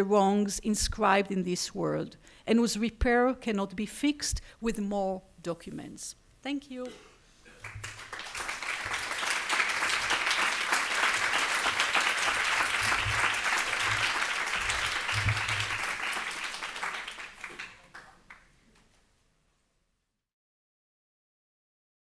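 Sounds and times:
audience applauding: 0:07.6 - 0:18.5.

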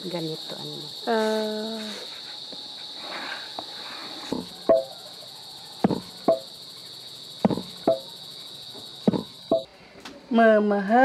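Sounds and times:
high insect drone: 0:00.0 - 0:11.0
pestle pounding in stone mortar: 0:05.8 - 0:06.5, 0:07.4 - 0:08.1, 0:09.1 - 0:09.7.

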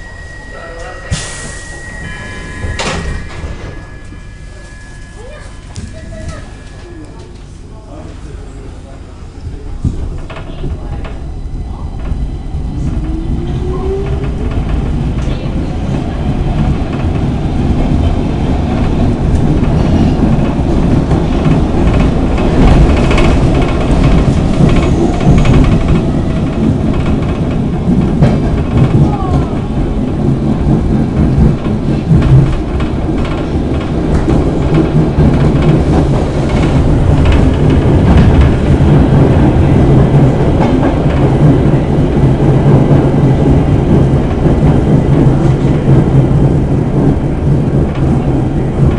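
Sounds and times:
subway train wheels rumbling: 0:00.0 - 0:48.9.

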